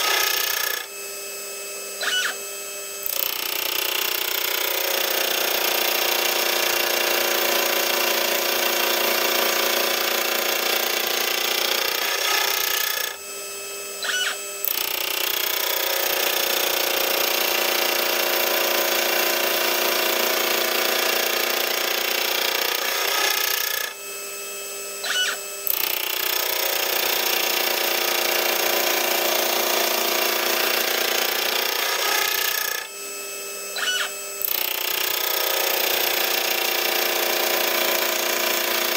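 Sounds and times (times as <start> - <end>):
rotary table whine: 0.0 - 7.0, 10.3 - 18.9, 20.8 - 28.7, 30.4 - 37.0
milling cutter grinding metal: 0.0 - 38.9.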